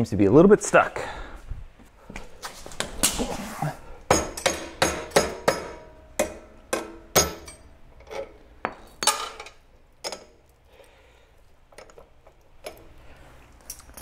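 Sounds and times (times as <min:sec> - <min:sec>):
hammer striking metal: 0:04.1 - 0:07.7.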